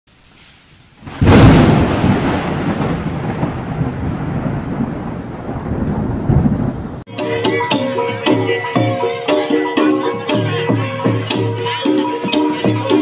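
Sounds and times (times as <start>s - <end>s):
thunder crack and rumble: 1.0s - 7.1s.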